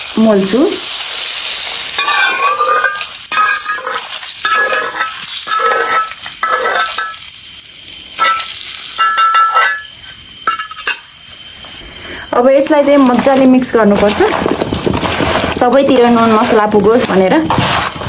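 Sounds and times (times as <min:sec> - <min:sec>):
metal spoon scraping a pan: 0:01.3 - 0:07.3, 0:08.2 - 0:11.1, 0:15.0 - 0:18.0.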